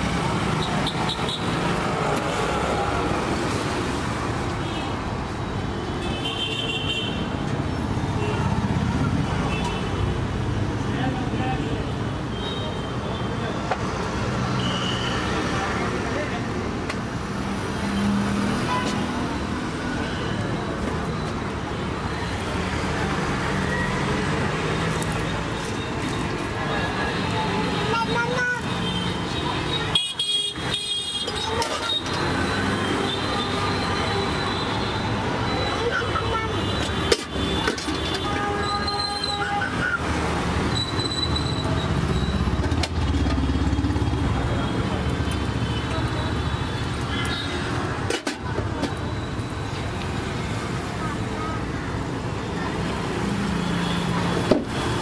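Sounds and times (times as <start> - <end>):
street traffic: 0.0 - 55.0
passing traffic rumble: 40.0 - 55.0.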